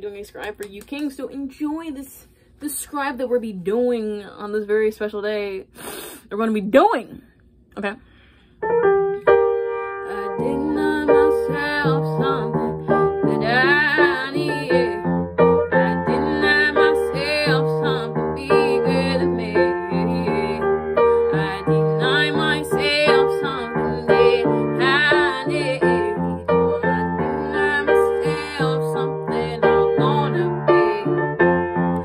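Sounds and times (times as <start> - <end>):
woman singing with vibrato: 10.0 - 31.3.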